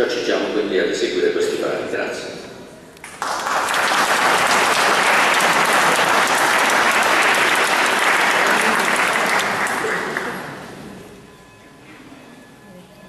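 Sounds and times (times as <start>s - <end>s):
audience applauding: 3.0s - 10.8s.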